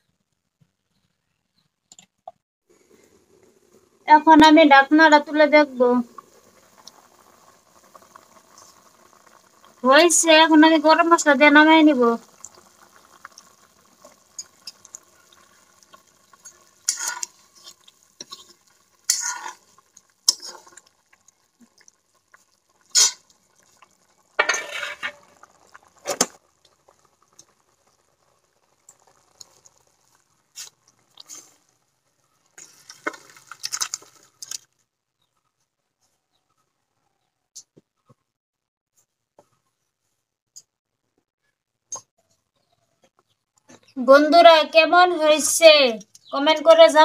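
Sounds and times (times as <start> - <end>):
spoon clinking and scraping in pot: 16.9 - 19.6, 20.3 - 20.8, 22.9 - 23.2, 24.4 - 25.3
curry poured into steel bowl: 32.6 - 34.6.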